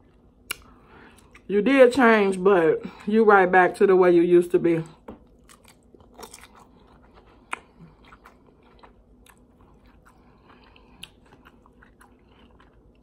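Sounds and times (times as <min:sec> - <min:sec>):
person chewing crunchy food: 0:00.0 - 0:01.5, 0:05.0 - 0:13.0.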